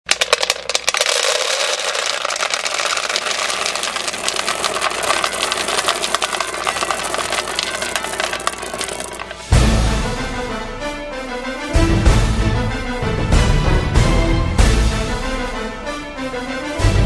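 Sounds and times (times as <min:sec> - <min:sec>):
kibble rattling into a bowl: 0:00.0 - 0:09.4.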